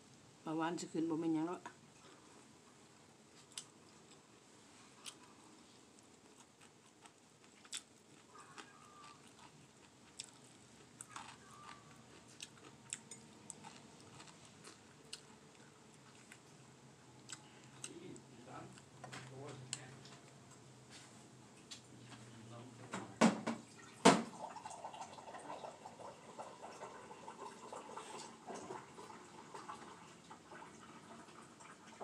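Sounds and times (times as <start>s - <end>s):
person chewing: 3.3s - 20.6s.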